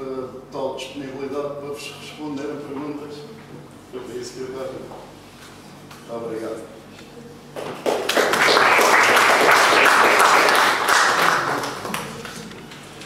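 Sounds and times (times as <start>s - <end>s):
audience applauding: 7.8s - 12.4s.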